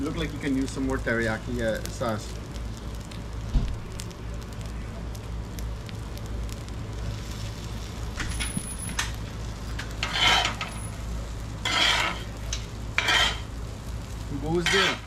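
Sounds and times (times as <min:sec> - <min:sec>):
steady low hum: 0:00.0 - 0:15.0
spatulas scraping on griddle: 0:07.2 - 0:11.0, 0:11.6 - 0:13.6, 0:14.5 - 0:15.0.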